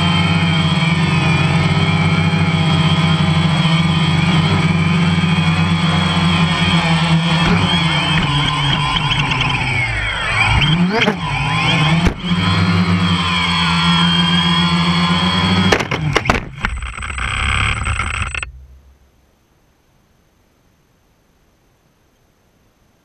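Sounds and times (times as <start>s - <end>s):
drone motors whining: 0.0s - 19.2s
drone crashing into grass: 7.1s - 9.8s, 11.9s - 12.4s, 15.6s - 19.2s.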